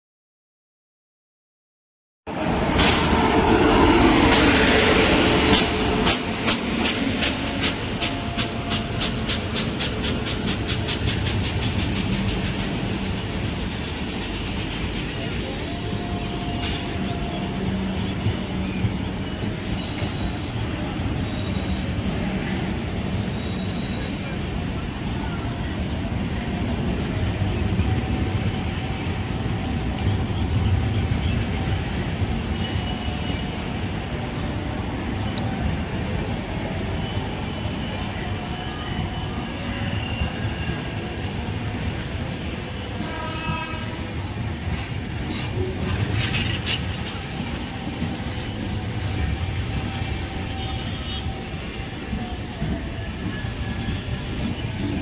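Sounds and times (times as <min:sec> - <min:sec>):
locomotive rushing past: 0:02.3 - 0:55.0
train wheels clickety-clack: 0:02.6 - 0:22.0, 0:39.8 - 0:55.0.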